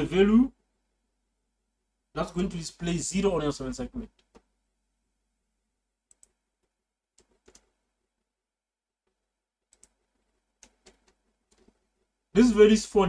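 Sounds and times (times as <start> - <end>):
keyboard key clicks: 7.2 - 7.7.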